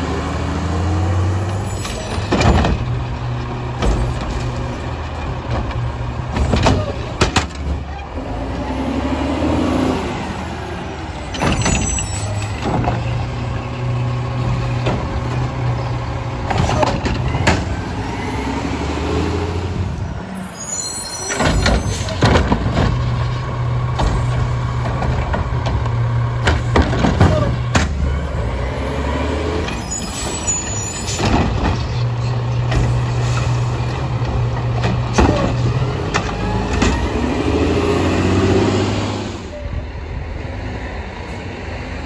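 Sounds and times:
diesel engine revving: 0.0s - 42.0s
metallic clanks and bangs: 1.8s - 7.9s, 21.3s - 28.1s
air brake squeals: 11.4s - 12.5s, 20.3s - 22.2s, 29.7s - 31.3s.

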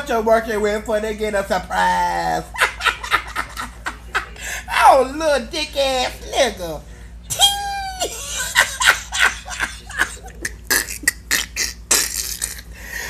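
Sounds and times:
woman laughing hard: 2.5s - 4.4s, 7.3s - 12.6s.

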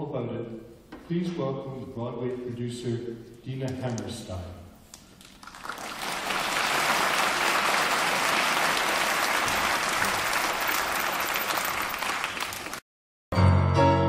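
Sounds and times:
audience applauding: 5.2s - 12.8s.

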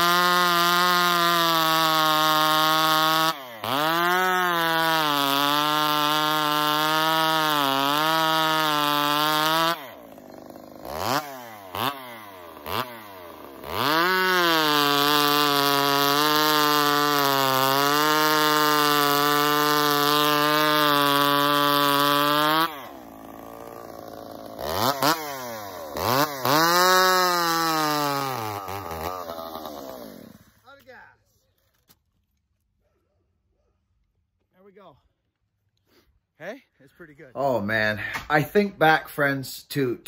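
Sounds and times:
chainsaw revving: 0.0s - 30.8s
chainsaw cutting through log: 0.0s - 30.9s.

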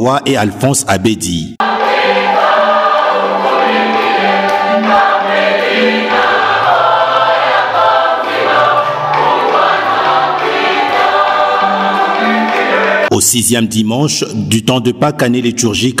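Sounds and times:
choir singing a hymn: 1.6s - 13.1s.

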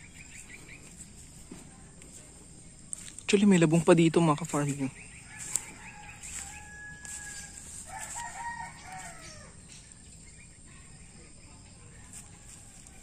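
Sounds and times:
rooster crowing: 5.2s - 9.8s, 12.0s - 13.0s.

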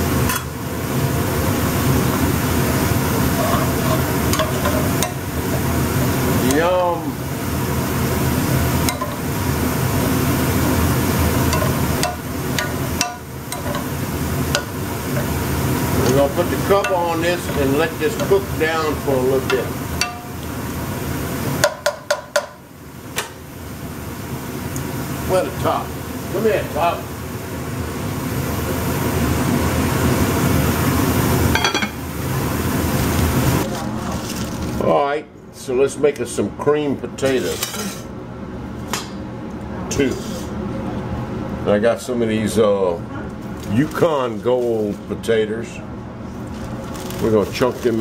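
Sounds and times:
vegetables sizzling in a pan: 0.0s - 34.8s
spatula scraping and clacking pan: 3.3s - 5.2s, 11.5s - 15.4s, 16.0s - 20.4s.

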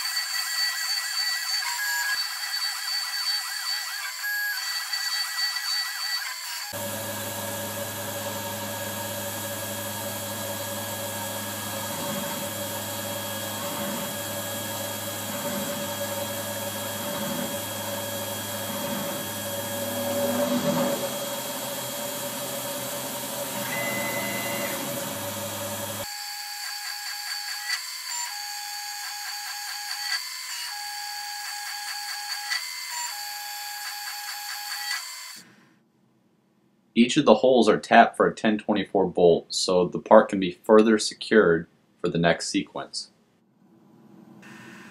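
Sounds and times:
mill spindle running: 0.3s - 26.2s.

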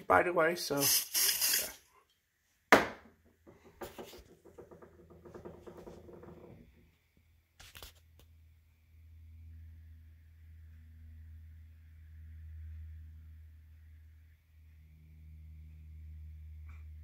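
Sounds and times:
aerosol spray hissing: 0.7s - 1.8s.

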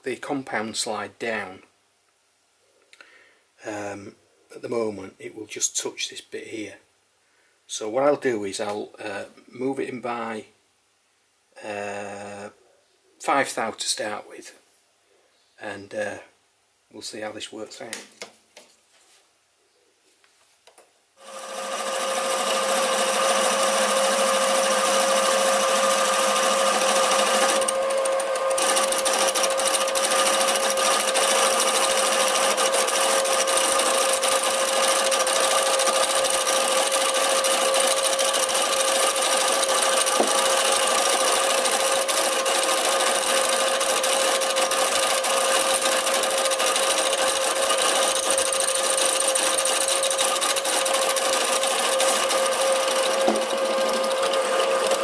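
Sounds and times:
lathe whining: 21.2s - 55.0s.

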